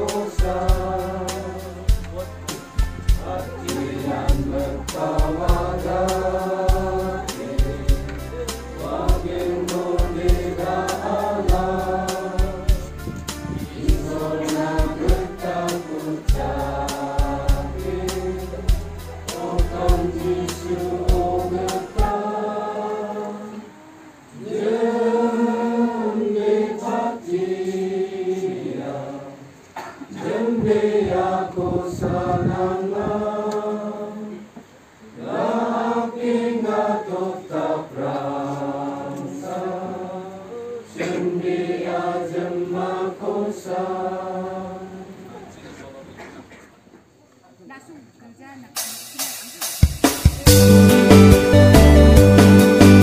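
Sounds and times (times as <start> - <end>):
rhythmic tapping with low thumps: 0.0 - 22.2, 30.6 - 33.3, 49.8 - 53.0
congregation singing a hymn: 0.0 - 46.4.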